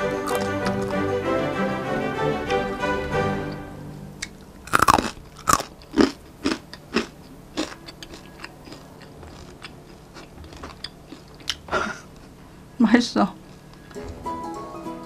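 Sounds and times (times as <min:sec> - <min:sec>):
person chewing crunchy jerky: 0:00.2 - 0:01.0, 0:04.3 - 0:12.4.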